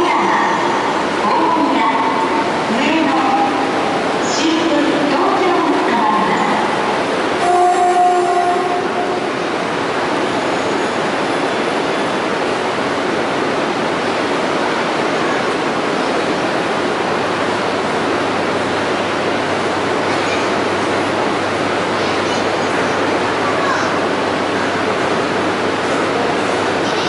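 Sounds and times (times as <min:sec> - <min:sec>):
train running and wheel noise: 0:00.0 - 0:27.0
horn-like tone: 0:07.4 - 0:09.3.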